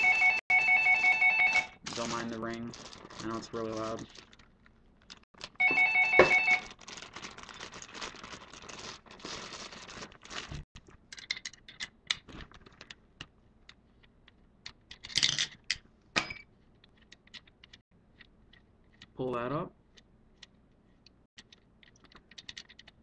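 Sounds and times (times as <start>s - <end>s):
plastic rustling and scraping: 1.8s - 11.0s, 11.6s - 14.4s
brief ringing tone: 5.6s - 6.6s.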